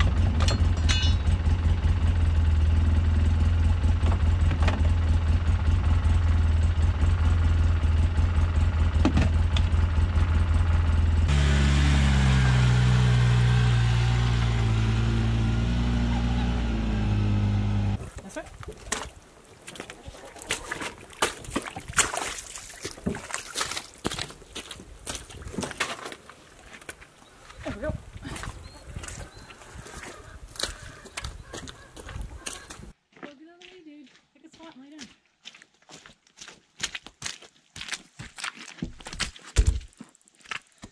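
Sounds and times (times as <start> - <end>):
utility vehicle engine: 0.0 - 18.0.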